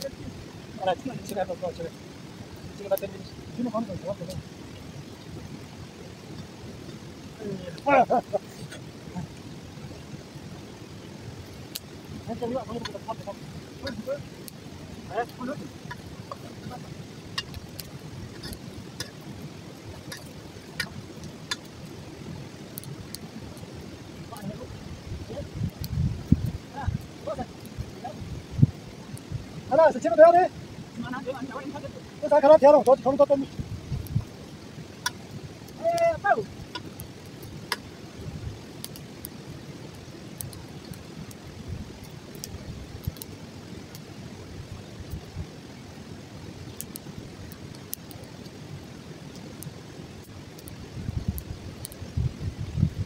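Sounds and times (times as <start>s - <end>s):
steady low rumble: 0.0s - 30.1s
wood fire crackling and popping: 0.0s - 53.0s
sharp pops: 12.7s - 22.1s, 32.9s - 38.0s.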